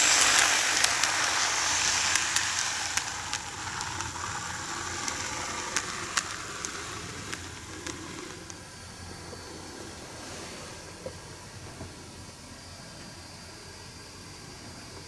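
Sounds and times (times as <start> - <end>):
sharp clicks on track: 0.0 - 8.6
model train wheels hissing: 0.0 - 15.0.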